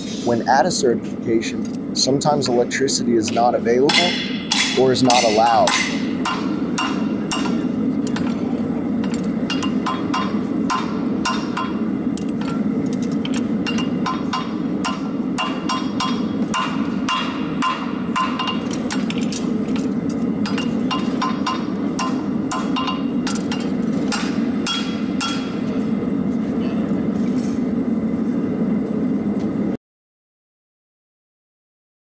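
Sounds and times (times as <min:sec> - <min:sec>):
steady low hum: 0:00.0 - 0:29.8
hammer striking horseshoe on anvil: 0:03.3 - 0:12.6, 0:13.2 - 0:25.7.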